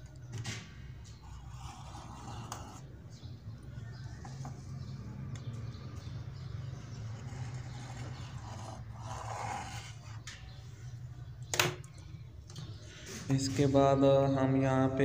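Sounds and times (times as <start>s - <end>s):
marker scraping on metal: 1.1s - 2.9s, 6.9s - 10.7s.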